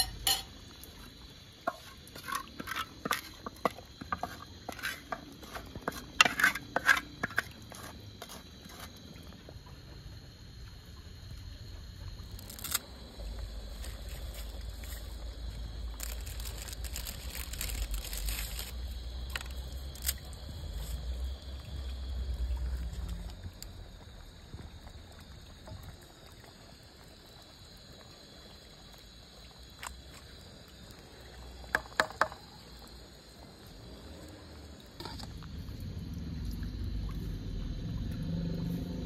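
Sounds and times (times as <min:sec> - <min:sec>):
pot of broth boiling: 0:00.0 - 0:39.0
wooden spoon knocking pot: 0:31.8 - 0:32.4.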